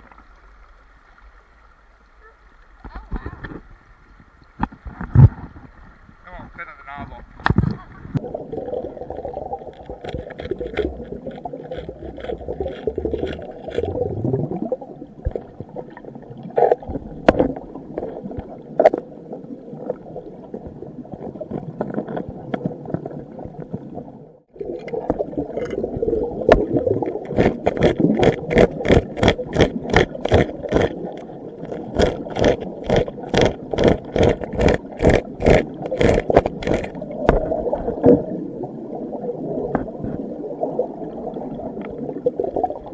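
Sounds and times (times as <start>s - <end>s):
muffled underwater water noise: 0.0s - 42.9s.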